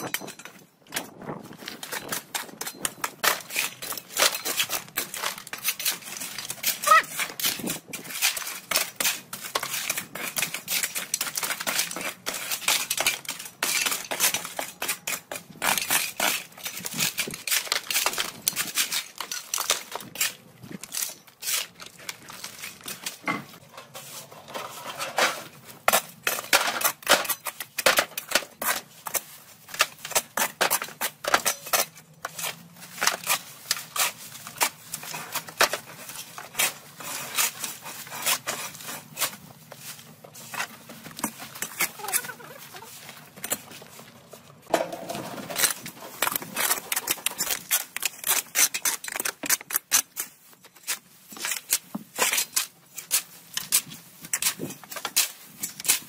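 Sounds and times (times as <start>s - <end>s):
shovels scraping dirt and rubble: 0.0s - 56.0s
debris clattering into metal wheelbarrow: 20.8s - 28.7s, 44.7s - 48.3s.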